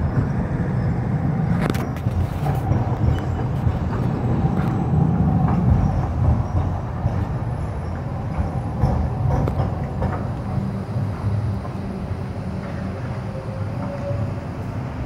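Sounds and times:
tram wheels rumbling on rails: 0.0 - 15.0
track clicks and knocks: 1.5 - 13.2.

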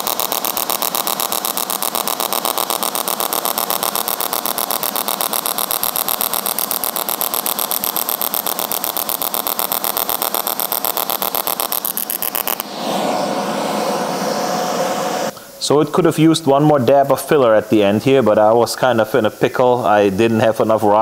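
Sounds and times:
welding arc pulsing buzz: 0.0 - 15.8
welding arc hiss: 0.0 - 21.0.

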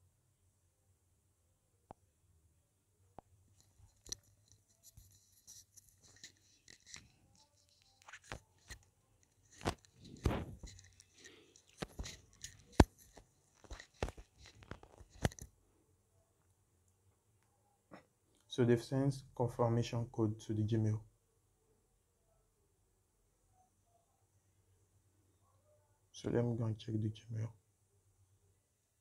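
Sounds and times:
crackling rustling: 3.5 - 15.5.

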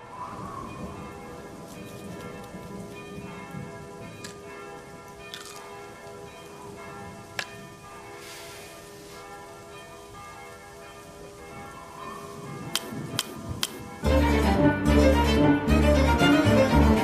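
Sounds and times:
church bells ringing: 0.0 - 17.0
sharp clicks: 12.7 - 13.8.

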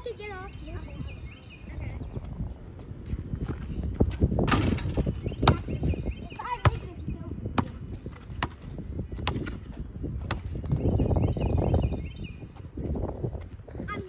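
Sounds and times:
basketball bouncing: 4.4 - 5.8, 6.5 - 10.8.

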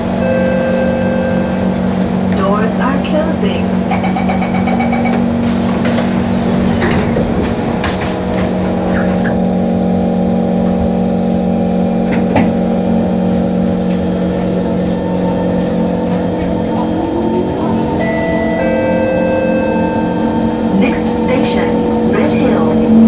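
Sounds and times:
train doors sliding shut: 0.0 - 9.6
electric train hum: 0.0 - 23.0.

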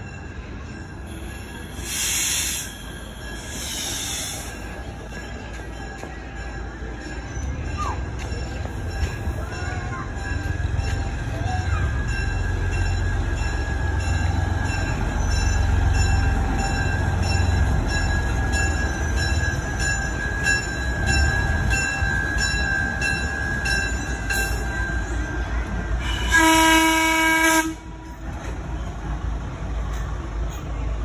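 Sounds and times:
locomotive engine rumble: 0.0 - 31.0
locomotive horn blast: 26.0 - 28.0.

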